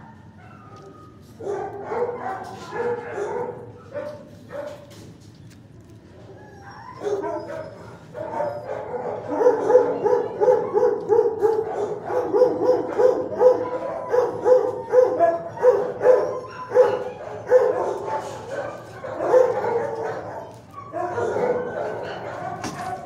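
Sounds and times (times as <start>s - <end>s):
dog barking: 1.4s - 4.9s, 6.8s - 23.0s.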